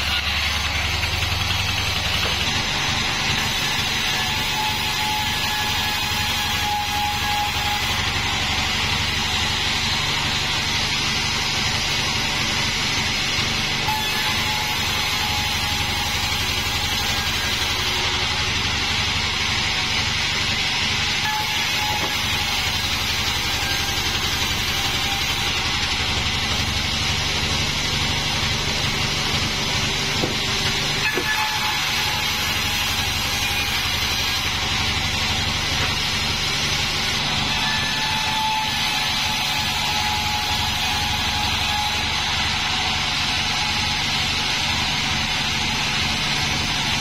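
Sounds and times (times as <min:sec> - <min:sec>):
saw blade hissing through log: 0:00.0 - 0:11.0, 0:19.8 - 0:45.0
sawmill engine drone: 0:00.0 - 0:47.0.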